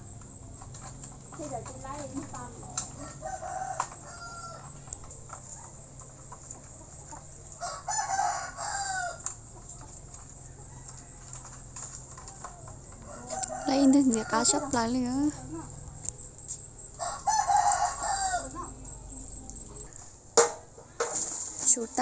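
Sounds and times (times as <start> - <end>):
rooster crowing: 2.9 - 5.0, 7.6 - 9.5, 10.3 - 15.3, 16.9 - 18.9.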